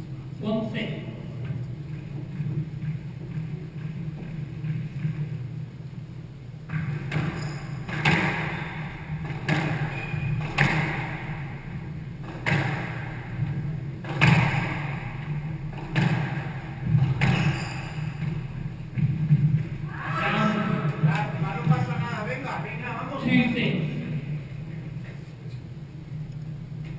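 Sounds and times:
squash ball hits with echo: 6.6s - 22.1s.

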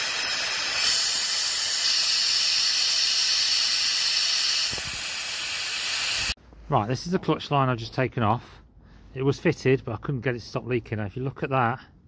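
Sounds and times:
compressed air hissing: 0.0s - 6.4s.

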